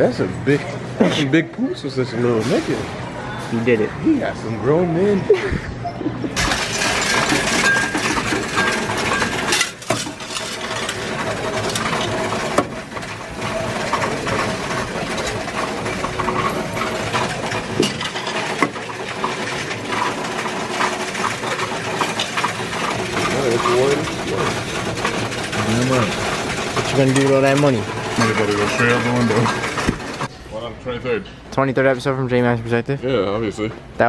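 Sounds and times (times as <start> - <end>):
coins rattling and clinking: 6.4 - 30.3.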